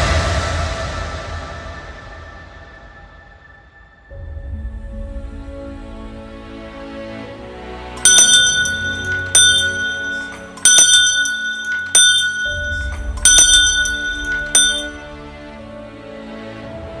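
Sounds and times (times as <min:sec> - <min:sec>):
soft background music: 0:04.0 - 0:17.0
small bell ringing: 0:08.0 - 0:15.1.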